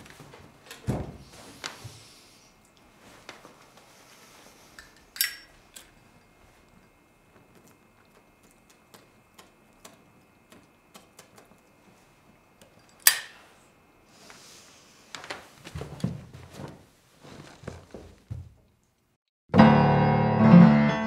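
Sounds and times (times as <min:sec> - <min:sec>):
irregular knocks and thuds: 0:00.8 - 0:01.3, 0:15.6 - 0:18.7
sharp crack: 0:13.0 - 0:13.4.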